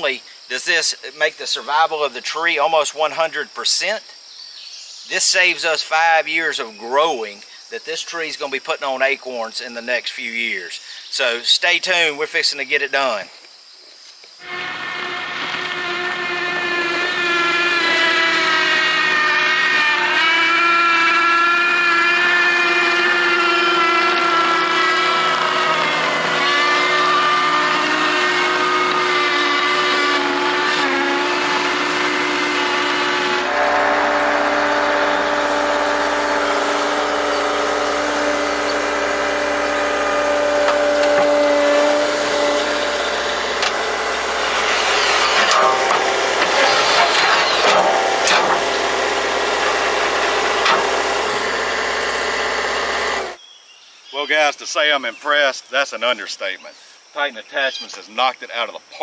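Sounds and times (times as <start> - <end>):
diesel engine running: 14.4 - 53.4
hydraulic drone: 14.4 - 53.4
sharp knocks and rattles: 36.4 - 53.4.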